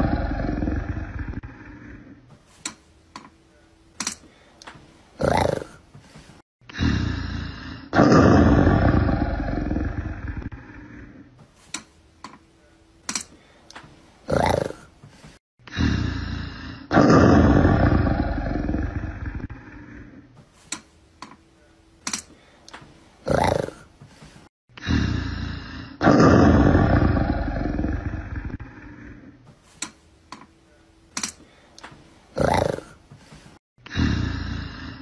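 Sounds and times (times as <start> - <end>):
loud animal roar: 0.0 - 2.1, 5.2 - 5.8, 7.9 - 11.1, 14.3 - 14.9, 16.8 - 20.0, 23.2 - 23.8, 26.0 - 29.1, 32.4 - 33.0.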